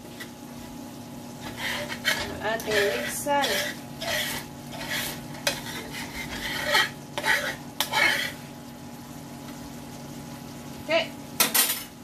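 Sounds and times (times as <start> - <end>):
metal spoon scraping a skillet: 1.4 - 8.4.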